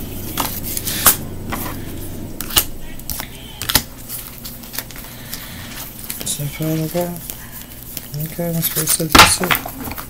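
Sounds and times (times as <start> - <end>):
cards clicking and tapping: 2.4 - 5.4.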